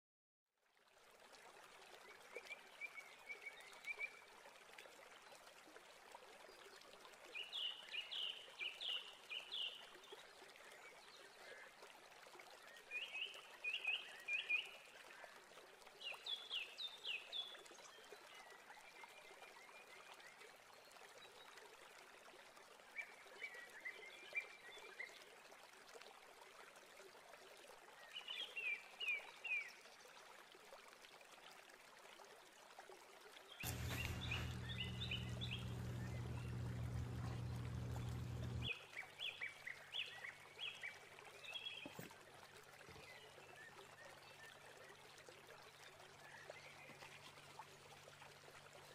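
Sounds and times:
steady hiss: 33.6 - 38.7.

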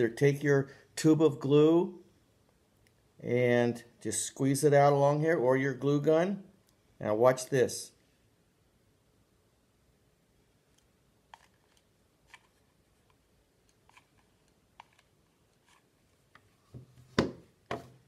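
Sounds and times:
glue gun put down knock: 16.7 - 18.0.

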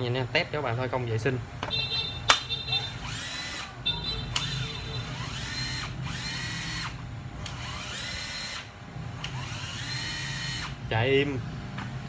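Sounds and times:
cordless driver motor whining: 2.9 - 10.8.

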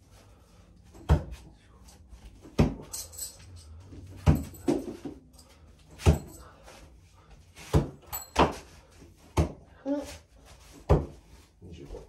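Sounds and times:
metal spikes jingling: 2.8 - 6.5.

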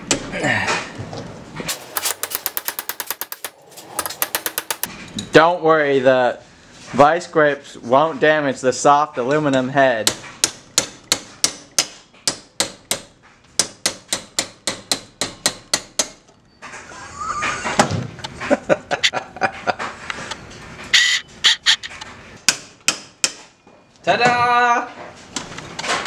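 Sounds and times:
scraping and knocking metal: 1.4 - 5.3.

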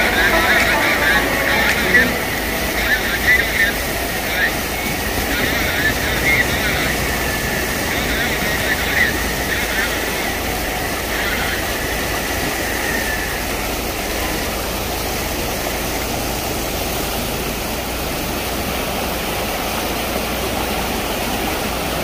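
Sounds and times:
faint whine: 0.0 - 14.4.

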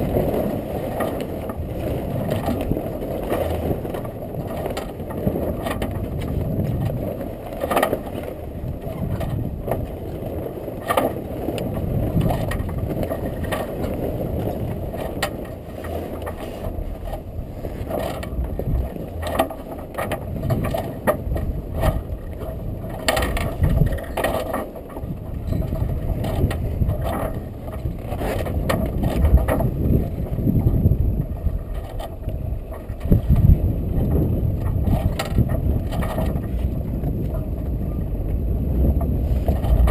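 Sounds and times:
sail and rigging rattling: 0.0 - 39.9
wind and water rushing: 0.0 - 39.9.

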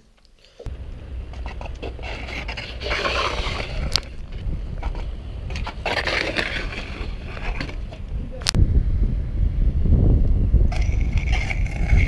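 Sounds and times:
wind rumble on microphone: 0.7 - 12.0
bike metal scraping on stone: 1.3 - 8.1, 10.7 - 12.0.

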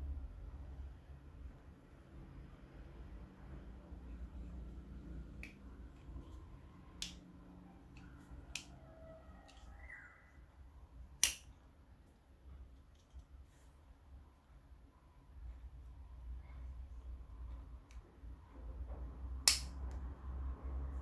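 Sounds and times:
folding knife clicks: 11.2 - 11.5, 19.4 - 19.8.

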